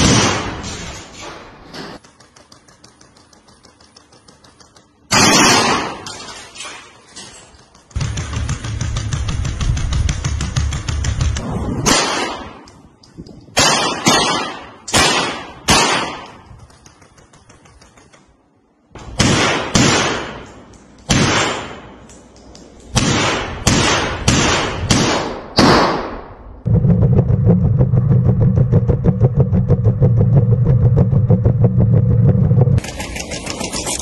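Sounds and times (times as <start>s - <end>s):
rifle firing single shots: 13.6s - 16.4s.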